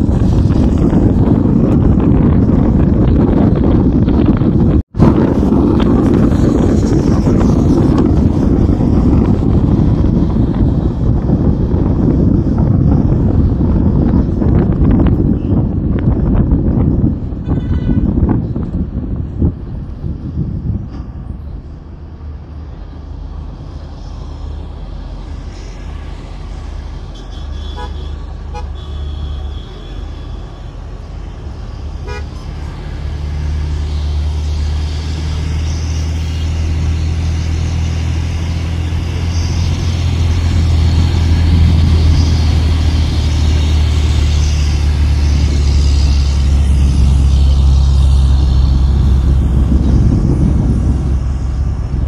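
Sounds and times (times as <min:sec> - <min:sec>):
bus engine rumble: 0:00.0 - 0:52.0
road noise: 0:00.0 - 0:52.0
horn toots: 0:27.1 - 0:30.8, 0:32.0 - 0:32.6.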